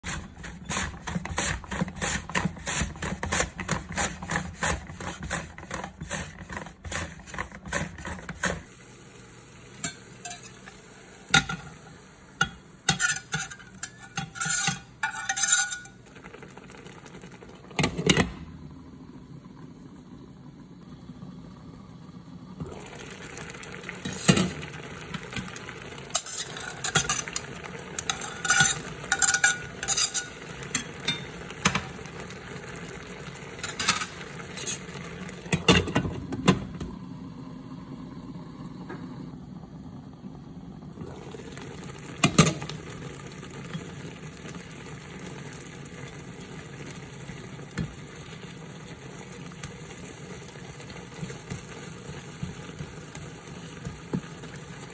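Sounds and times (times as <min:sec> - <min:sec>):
metal spatula scraping: 0:00.0 - 0:08.7, 0:09.8 - 0:11.6, 0:12.4 - 0:16.0, 0:26.1 - 0:31.3, 0:33.6 - 0:34.9.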